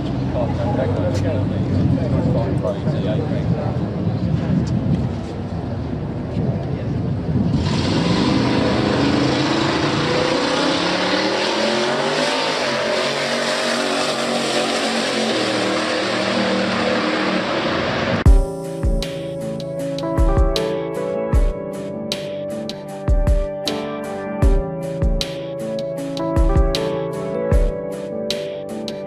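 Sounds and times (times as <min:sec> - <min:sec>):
pickup truck engine revving: 0:07.5 - 0:18.3.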